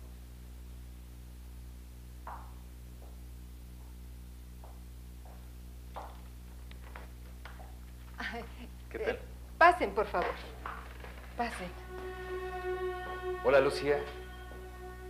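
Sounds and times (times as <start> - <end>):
electrical hum: 0.0 - 15.0
footsteps tapping: 2.2 - 4.0, 4.6 - 8.4, 10.0 - 13.2.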